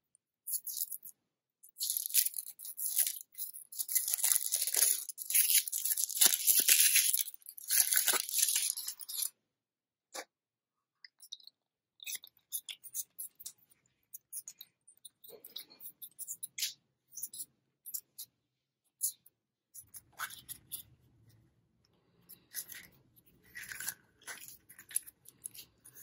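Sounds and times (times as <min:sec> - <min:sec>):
chocolate shell cracking: 0:01.7 - 0:09.3
foil wrapper crinkling and tearing: 0:01.8 - 0:09.3.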